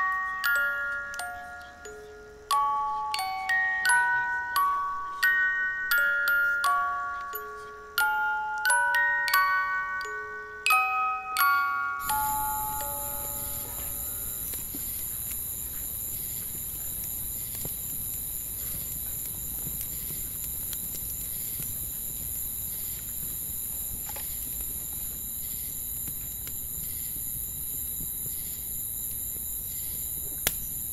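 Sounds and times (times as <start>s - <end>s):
insect chirp: 0.0s - 30.9s
insects droning: 0.0s - 30.9s
campfire crackling: 12.0s - 30.9s.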